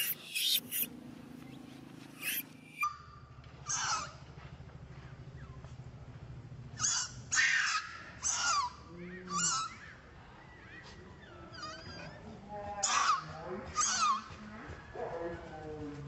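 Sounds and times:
baby monkey squealing: 0:00.0 - 0:00.9, 0:02.2 - 0:03.0, 0:03.7 - 0:04.2, 0:06.8 - 0:09.9, 0:10.7 - 0:14.4.

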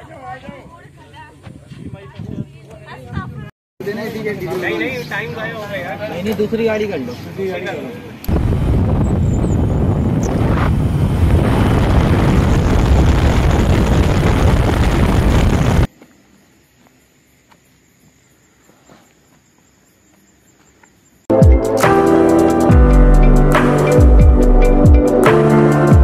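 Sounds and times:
wind buffeting microphone: 0:00.2 - 0:03.5, 0:08.3 - 0:15.9
motorcycle road noise: 0:03.9 - 0:15.9.

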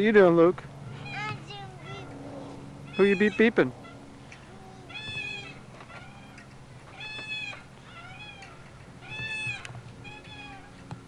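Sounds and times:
swing set squeaking: 0:00.8 - 0:11.0.

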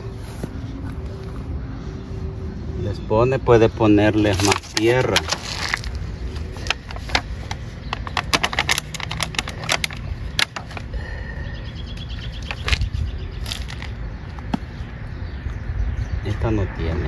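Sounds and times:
hands rustling potting soil: 0:03.8 - 0:10.9, 0:12.0 - 0:14.4.

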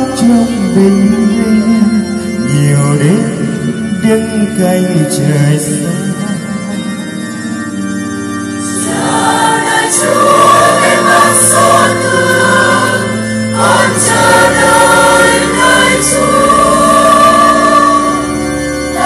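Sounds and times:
choir singing a hymn: 0:08.5 - 0:19.0.

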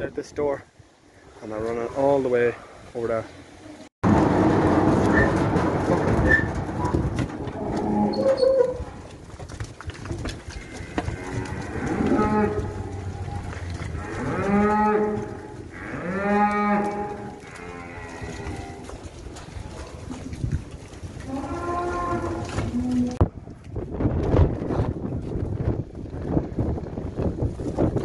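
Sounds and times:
cows mooing: 0:07.5 - 0:08.9, 0:10.5 - 0:19.1, 0:21.2 - 0:23.2.

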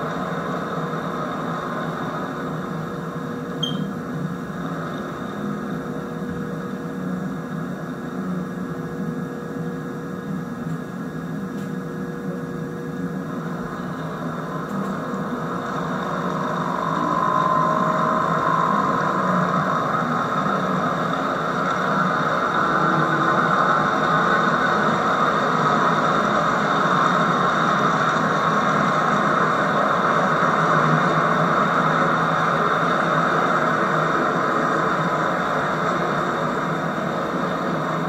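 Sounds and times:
model train wheels rolling on track: 0:13.4 - 0:38.0.

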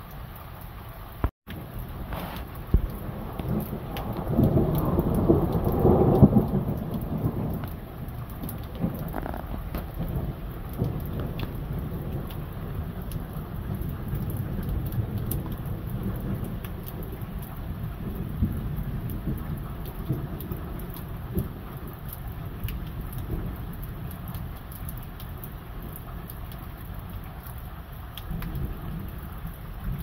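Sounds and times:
heavy rain: 0:00.0 - 0:30.0
raindrop ticks: 0:00.0 - 0:30.0
thunder rumbling: 0:01.6 - 0:24.6.

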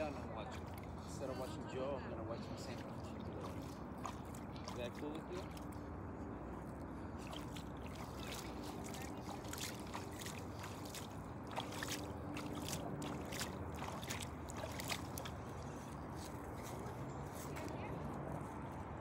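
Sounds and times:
river water flowing and lapping: 0:00.0 - 0:19.0.

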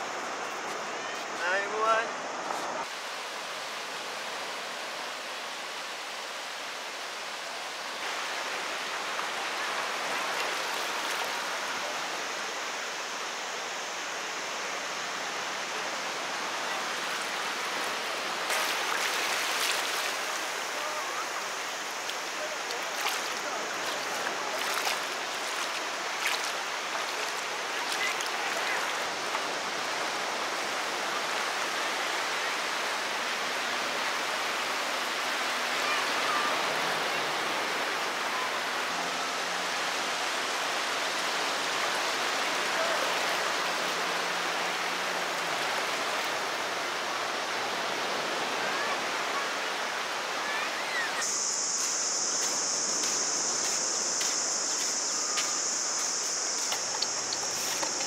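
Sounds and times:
small waves washing on beach: 0:00.0 - 0:58.0
high-pitched insect drone: 0:50.2 - 0:58.0.

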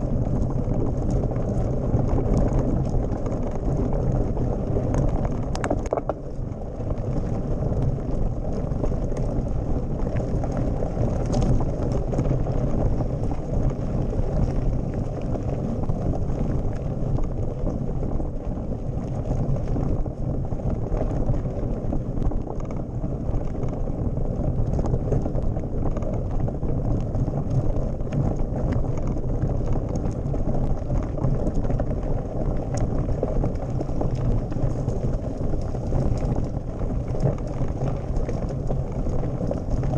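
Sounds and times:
bike tyres rumbling on gravel: 0:00.0 - 0:39.9
bike clicks and rattles: 0:00.2 - 0:06.6.

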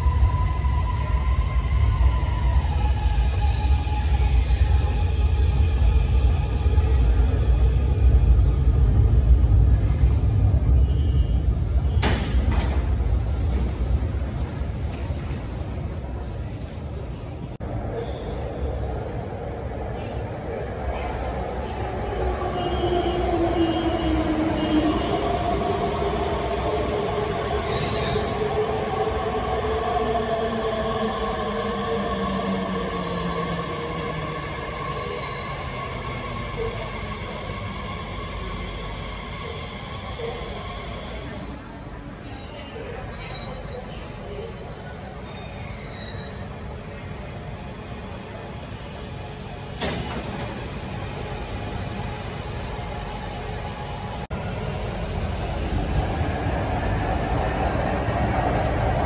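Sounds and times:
train wheels rumbling on rail: 0:00.0 - 0:17.8, 0:18.6 - 0:30.6, 0:32.7 - 0:59.0
train brakes squealing: 0:27.3 - 0:30.4, 0:31.6 - 0:46.6.

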